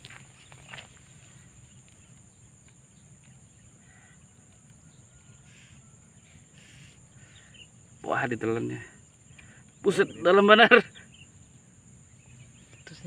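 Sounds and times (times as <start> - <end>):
faint bird-like call: 3.8 - 7.6.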